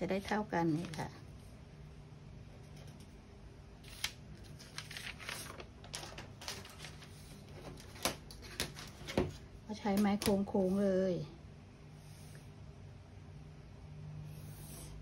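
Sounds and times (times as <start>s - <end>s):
paper sheets rustling: 3.8s - 9.4s.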